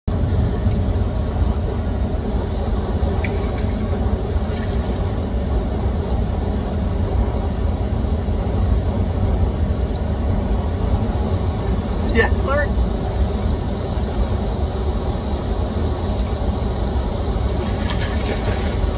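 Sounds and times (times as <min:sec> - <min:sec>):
river water pouring over weir: 0:02.9 - 0:05.6, 0:16.0 - 0:18.9.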